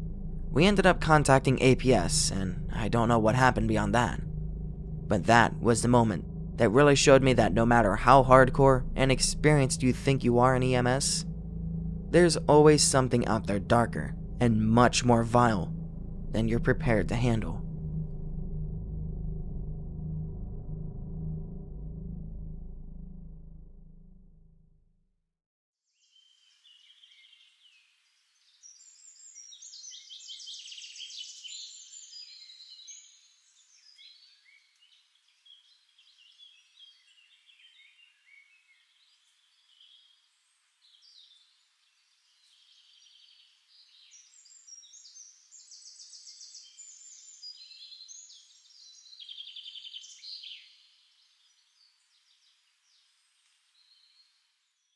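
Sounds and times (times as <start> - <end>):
songbirds chirping and trilling: 26.0 - 54.9.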